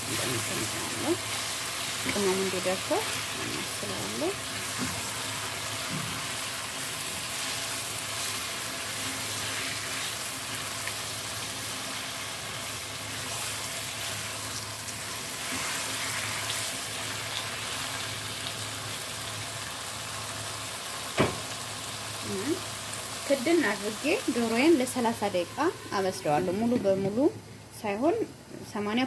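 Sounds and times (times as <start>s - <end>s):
chicken sizzling in a pan: 0.0s - 26.2s.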